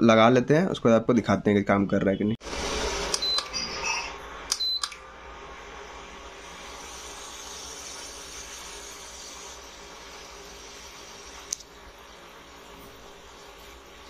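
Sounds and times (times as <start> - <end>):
cooling fan hissing: 2.4 - 14.0
cooktop beep: 3.1 - 5.0.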